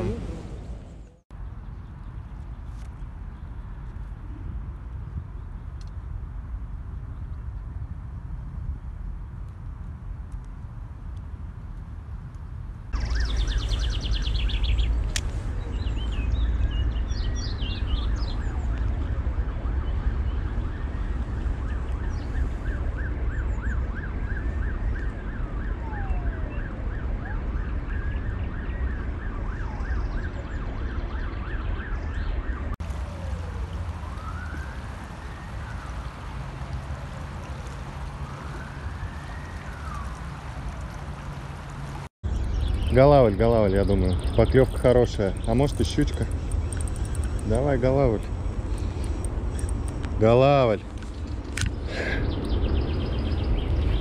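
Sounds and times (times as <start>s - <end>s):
birds chirping: 0.0s - 3.8s, 13.0s - 24.7s, 33.2s - 54.0s
distant emergency siren: 12.9s - 50.2s.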